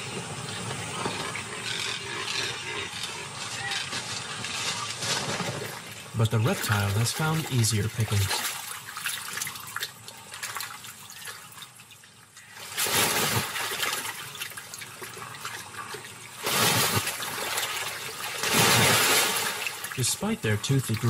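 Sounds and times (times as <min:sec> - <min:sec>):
splashing in water: 0:03.6 - 0:20.1.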